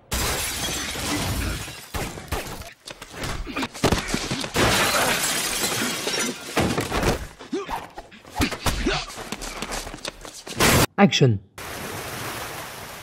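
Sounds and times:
glass shattering: 0.1 - 2.2, 4.5 - 7.2.

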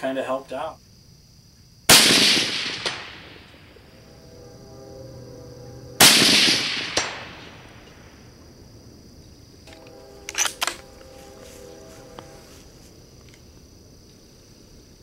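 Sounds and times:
high insect buzz: 0.6 - 15.0
rifle shot echoing: 1.9 - 3.7, 6.0 - 7.9
sharp clicks: 9.6 - 10.9.

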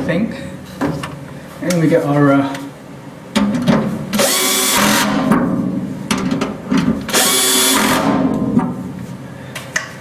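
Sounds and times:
cordless drill running: 4.2 - 5.2, 7.1 - 8.1.

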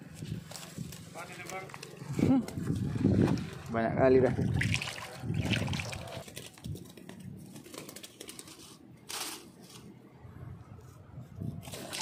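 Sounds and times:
rustling handling noise: 0.0 - 3.7, 6.2 - 10.1.

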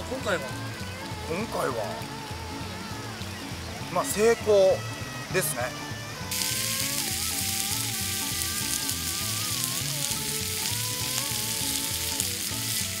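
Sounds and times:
background music with bass line: 0.0 - 13.0
meat sizzling on a griddle: 6.3 - 13.0.

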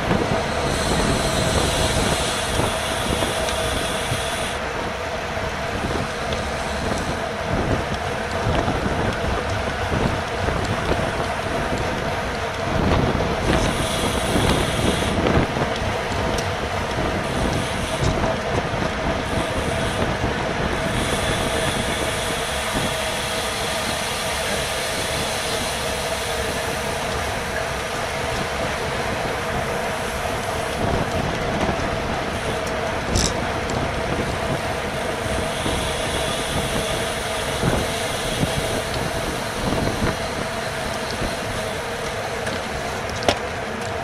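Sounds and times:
wind rushing over microphone: 0.0 - 23.2, 26.4 - 41.8
road rumble: 0.0 - 44.0
steady hum: 0.0 - 44.0.

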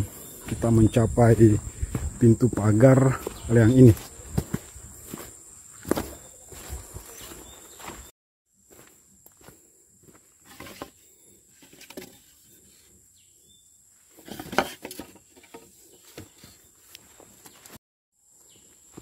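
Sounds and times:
footsteps on dirt path: 0.0 - 11.4, 15.6 - 17.8, 18.4 - 19.0.

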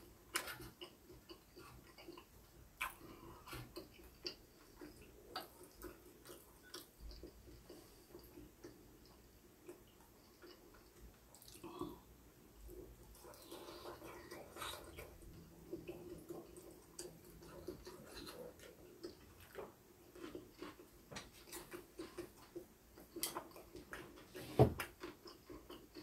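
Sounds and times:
quiet chewing: 0.0 - 26.0.

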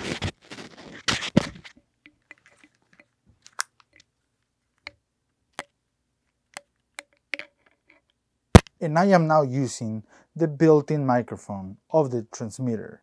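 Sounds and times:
faint clicks and rubs: 0.0 - 5.0, 5.6 - 8.2.

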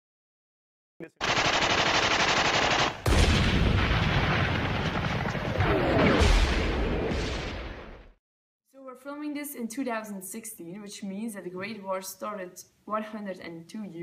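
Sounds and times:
machine-gun fire: 1.2 - 8.0
heavy deep gunfire: 1.2 - 8.2.

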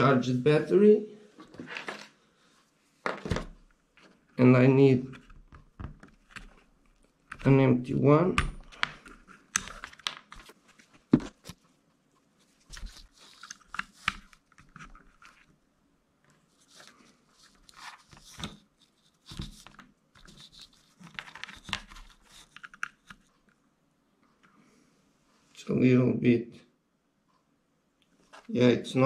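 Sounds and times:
plastic plugs clicking and rustling: 5.1 - 7.6, 8.4 - 11.6, 12.7 - 15.5, 17.6 - 23.6.

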